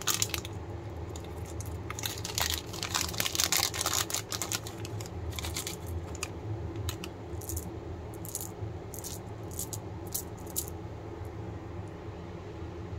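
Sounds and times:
candy buttons clicking and rattling: 0:00.0 - 0:00.5, 0:01.1 - 0:10.7
plastic wrapper crinkling: 0:00.0 - 0:07.6
steady low hum: 0:00.0 - 0:12.9.

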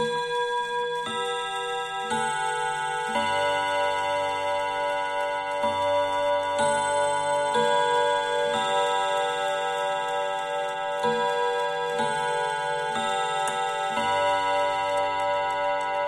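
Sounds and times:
clock chiming on gong rods: 0:00.0 - 0:16.0
clock ticking: 0:00.0 - 0:16.0.

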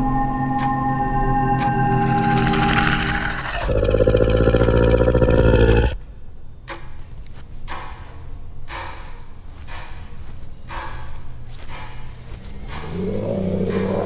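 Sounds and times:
creature roaring: 0:02.6 - 0:06.0
rough growls: 0:02.7 - 0:06.0, 0:12.5 - 0:14.0.

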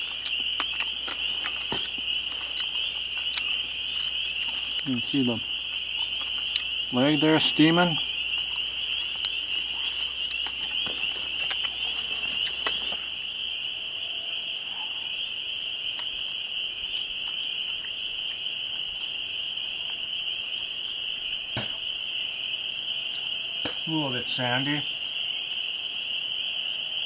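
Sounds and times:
dry leaves crackling: 0:00.0 - 0:13.9
frogs calling: 0:00.0 - 0:27.0.

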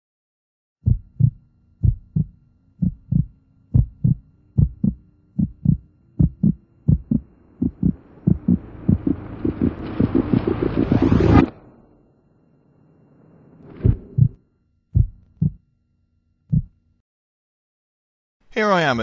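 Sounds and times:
heartbeat thumps: 0:00.8 - 0:11.5, 0:13.8 - 0:15.6, 0:16.5 - 0:16.8
rising rush of noise: 0:05.7 - 0:14.4.

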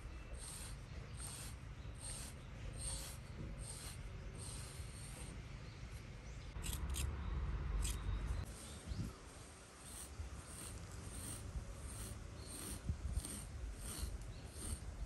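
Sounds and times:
brush raking through dog fur: 0:08.4 - 0:14.9.

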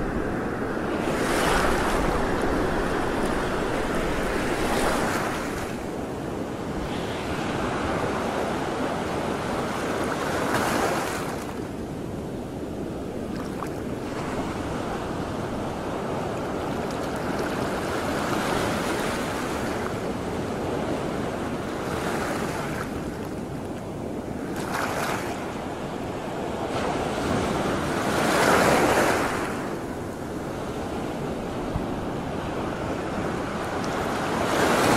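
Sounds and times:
wind buffeting microphone: 0:00.0 - 0:10.9.

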